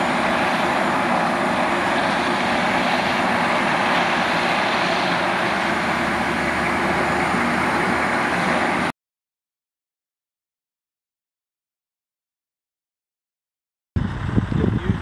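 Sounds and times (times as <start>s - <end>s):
vehicle engine driving past: 1.8s - 8.9s.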